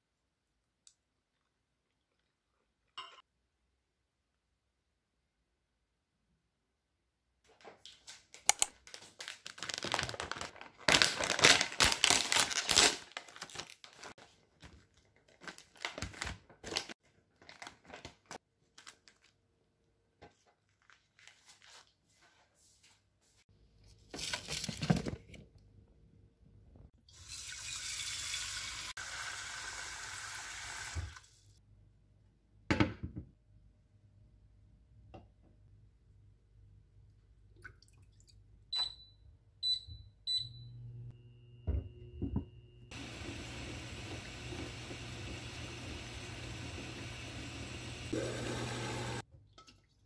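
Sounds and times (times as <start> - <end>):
kitchen tap running: 27.1 - 31.5, 42.9 - 49.8
cooktop low hum: 38.4 - 50.0
induction cooktop beeps: 38.7 - 44.2
water heating in pot rushing: 42.9 - 49.2.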